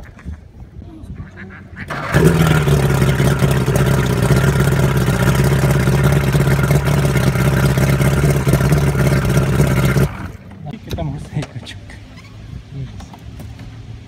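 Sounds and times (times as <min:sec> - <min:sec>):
outboard motor running: 0:01.9 - 0:10.5.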